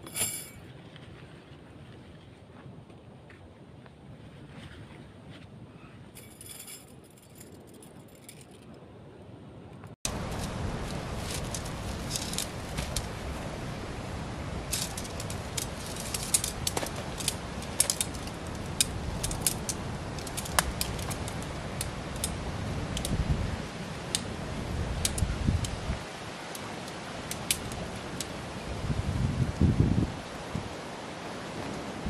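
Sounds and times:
steady low rumble: 0:06.3 - 0:26.0
tent pole sections clicking: 0:10.1 - 0:13.2, 0:14.6 - 0:23.2, 0:25.0 - 0:25.8, 0:26.4 - 0:28.4.

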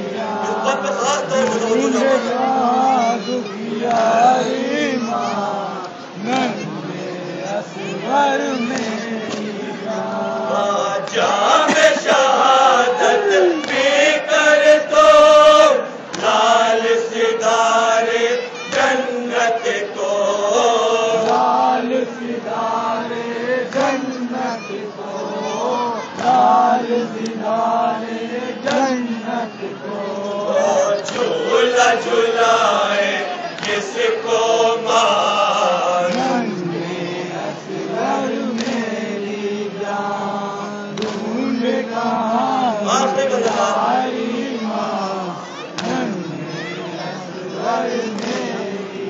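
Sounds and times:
men chanting: 0:00.0 - 0:49.0
man chanting into microphone: 0:00.1 - 0:13.6.

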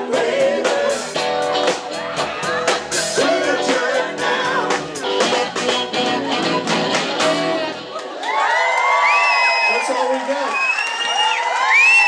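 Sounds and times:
live rock band playing: 0:00.0 - 0:08.2
man singing: 0:03.1 - 0:05.2
audience cheering and whooping: 0:07.8 - 0:12.0.

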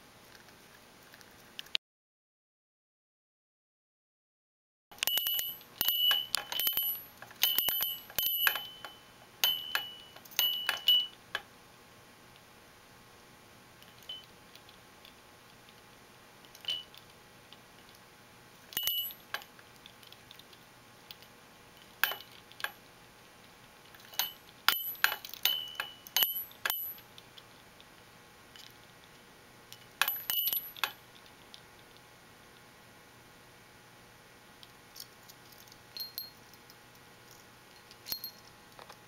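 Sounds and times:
small metal bell ringing: 0:05.0 - 0:11.2, 0:16.6 - 0:17.0, 0:18.7 - 0:19.3, 0:24.1 - 0:27.0, 0:30.0 - 0:30.9, 0:35.9 - 0:36.4, 0:37.8 - 0:38.5.

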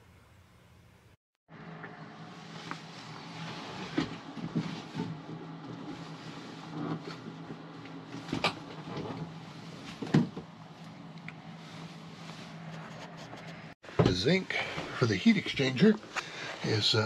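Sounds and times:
knocks and clunks: 0:09.9 - 0:10.5, 0:13.9 - 0:14.3.

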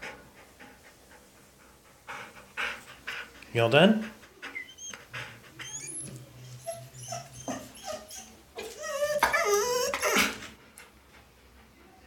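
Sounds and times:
dog whining and panting: 0:04.1 - 0:10.8
dog yipping: 0:05.6 - 0:10.4.

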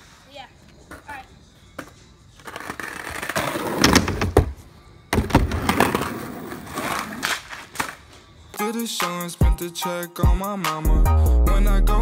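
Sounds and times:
skateboard wheels rolling on concrete: 0:00.0 - 0:08.6.

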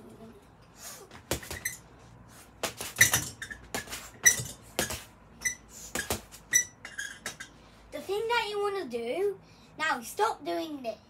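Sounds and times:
gloves punching heavy bag: 0:01.1 - 0:01.8, 0:02.6 - 0:05.1.

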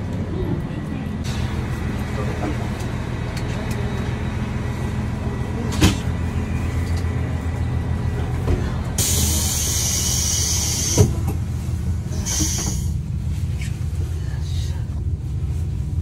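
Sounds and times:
diesel railcar engine rumble: 0:00.0 - 0:16.0
compressed air hiss: 0:09.0 - 0:11.2, 0:12.2 - 0:13.0.

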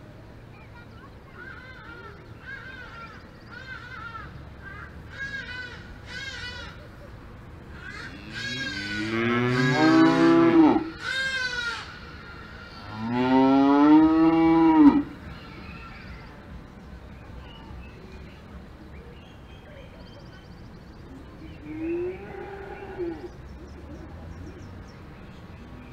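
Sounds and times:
cows mooing: 0:08.1 - 0:11.0, 0:12.8 - 0:15.1.

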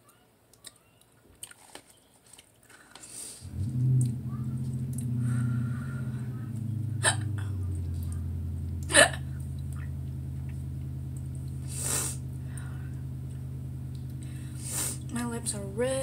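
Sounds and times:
steady low hum: 0:03.4 - 0:16.0
soft breathy sound: 0:05.2 - 0:06.4
person hiccuping: 0:07.0 - 0:07.6, 0:08.9 - 0:09.3.

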